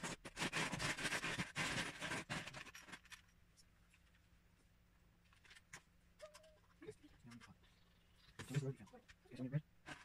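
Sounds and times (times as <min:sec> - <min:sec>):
paper rustling and scratching: 0:00.0 - 0:03.2.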